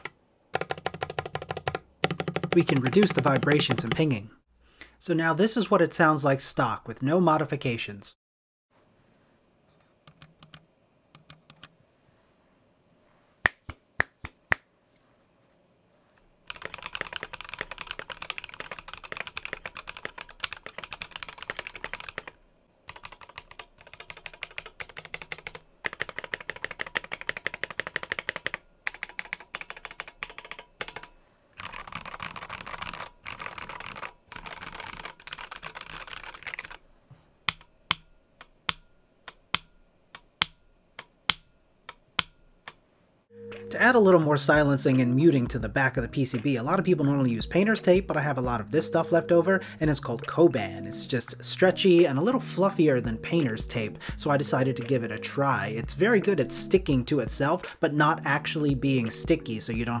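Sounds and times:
mechanical keyboard typing: 0:00.0 - 0:04.1, 0:16.4 - 0:36.8.

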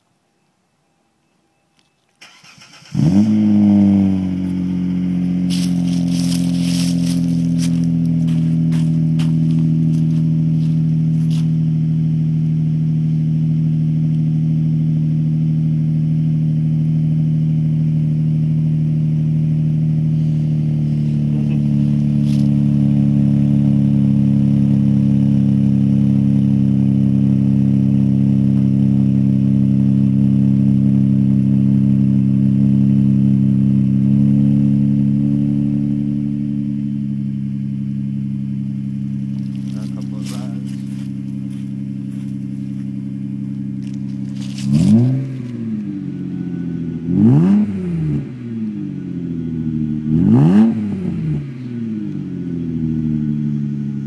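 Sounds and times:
car engine idling: 0:02.1 - 0:54.0.

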